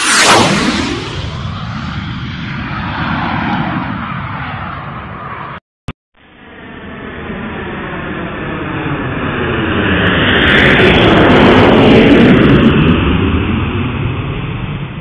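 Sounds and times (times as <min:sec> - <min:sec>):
sweeping whoosh: 0:00.0 - 0:03.0
jet aircraft flyby: 0:00.0 - 0:05.6, 0:06.3 - 0:15.0.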